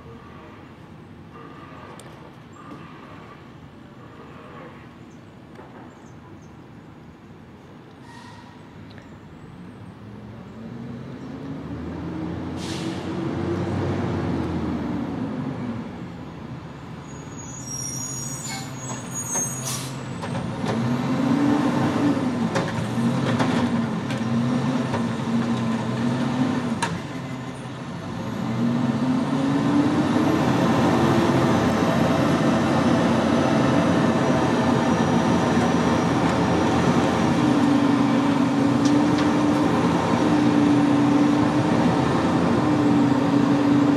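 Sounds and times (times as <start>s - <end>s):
air brake squeal and hiss: 8.0s - 8.8s, 12.6s - 13.2s, 17.1s - 20.1s
diesel engine revving: 10.6s - 16.0s, 19.7s - 43.9s.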